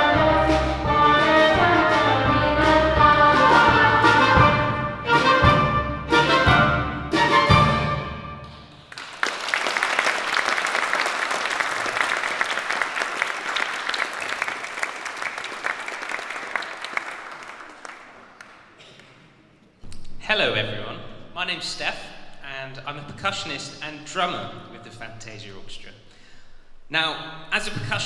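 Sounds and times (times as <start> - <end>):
audience applauding: 8.8 - 19.2.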